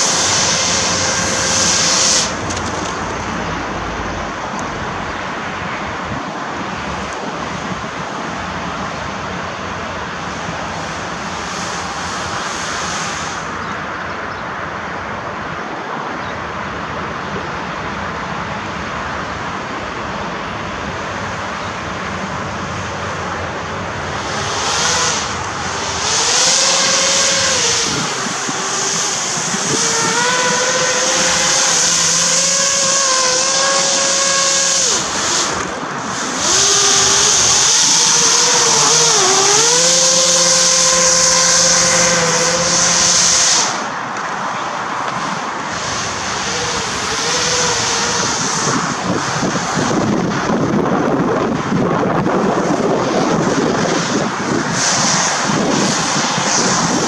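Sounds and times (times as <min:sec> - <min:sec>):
electric motor whine: 0:00.0 - 0:05.8, 0:19.4 - 0:51.3
hovercraft fans rushing: 0:00.0 - 0:57.0.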